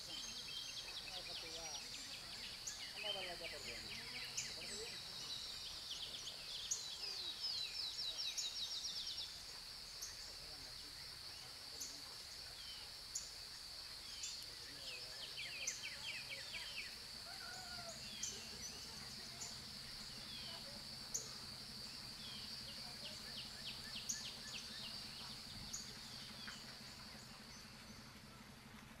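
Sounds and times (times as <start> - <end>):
small birds chirping and trilling: 0.0 - 28.4.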